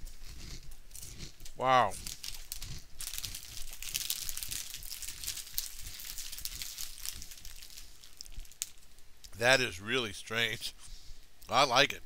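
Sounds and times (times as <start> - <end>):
potato chips crunching: 0.0 - 8.8
chip bag crinkling: 2.0 - 9.0.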